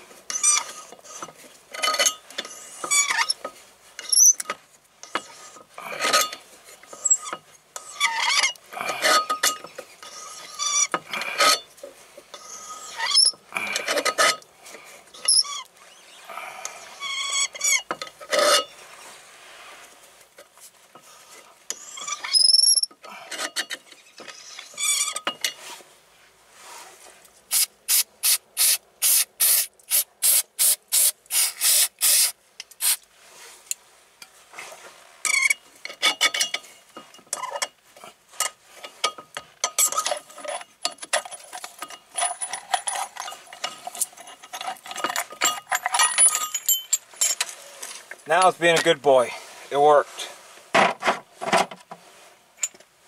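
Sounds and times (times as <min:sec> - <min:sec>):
metal tools clinking and rattling: 0:00.3 - 0:05.3, 0:05.9 - 0:11.7, 0:35.3 - 0:37.8, 0:38.4 - 0:47.6.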